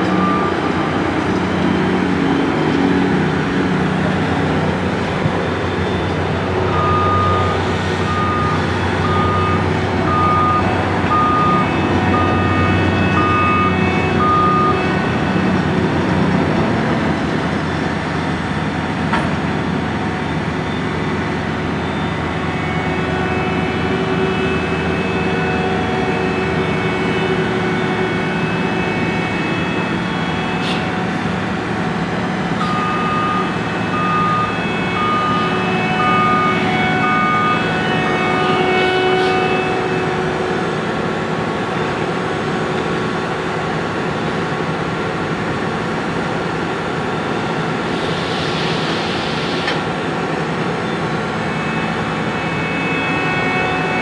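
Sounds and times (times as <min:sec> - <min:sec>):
diesel engine running: 0:00.0 - 0:54.0
backup alarm beeping: 0:05.2 - 0:15.5, 0:32.5 - 0:38.6.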